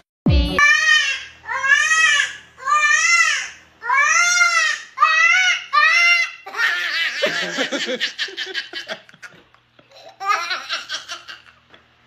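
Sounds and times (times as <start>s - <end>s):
high-pitched wailing cries: 0.6s - 7.7s
rapid laughter: 6.7s - 9.4s
deeper laugh: 7.1s - 9.4s.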